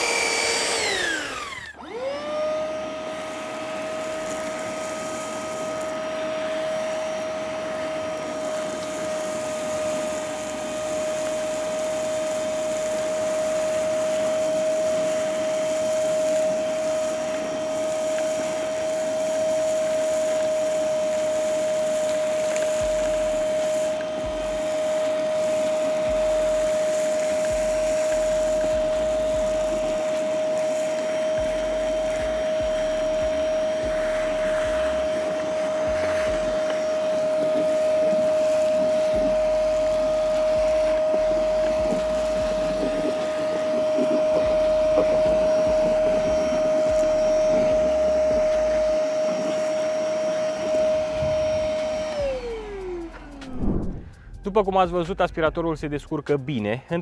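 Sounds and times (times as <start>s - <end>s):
vacuum motor whine: 0.0s - 54.4s
air rushing through hose: 0.0s - 55.1s.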